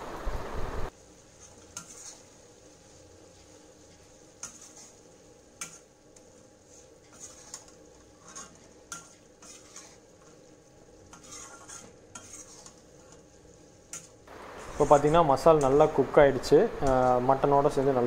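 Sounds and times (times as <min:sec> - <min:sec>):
faint sizzle: 0:00.0 - 0:18.0
steel ladle scraping iron pan: 0:01.4 - 0:02.4, 0:03.9 - 0:05.0, 0:05.6 - 0:15.8.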